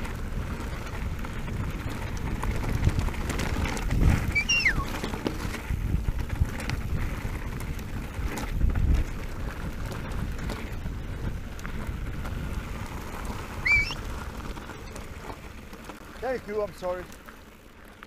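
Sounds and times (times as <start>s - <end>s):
wind rushing over microphone: 0.0s - 14.4s
bike tyres rolling on gravel: 0.0s - 18.0s.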